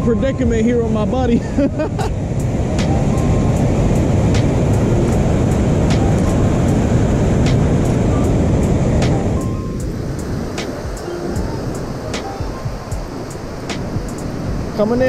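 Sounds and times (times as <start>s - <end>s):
water roaring over spillway: 0.7s - 15.0s.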